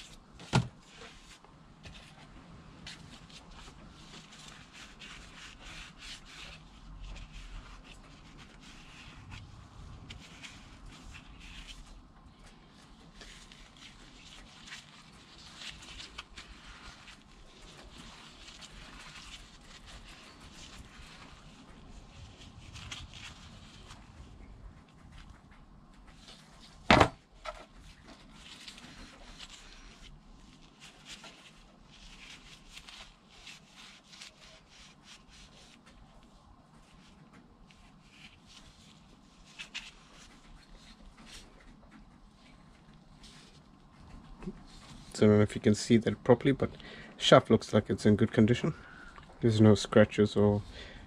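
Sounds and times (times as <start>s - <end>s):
sharp loud knock: 26.9s - 27.2s.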